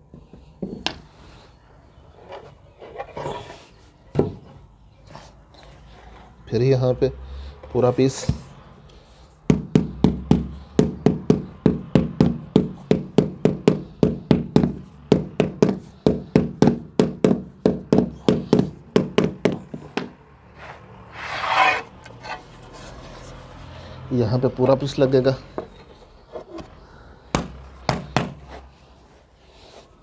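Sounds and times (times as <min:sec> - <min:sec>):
short scraping rasp: 0:20.6 - 0:23.1.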